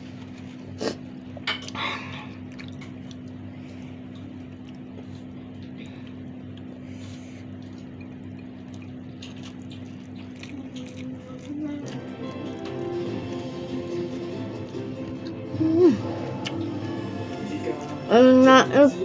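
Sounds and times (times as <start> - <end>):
steady low hum: 0.0 - 19.0
chewing: 1.6 - 18.0
fingers working food in a bowl: 7.5 - 13.4
music: 11.6 - 19.0.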